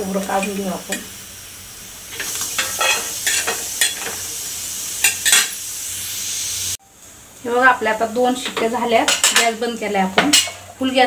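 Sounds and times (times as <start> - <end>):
steady hiss: 0.0 - 11.0
metal spatula scraping pan: 2.2 - 4.2.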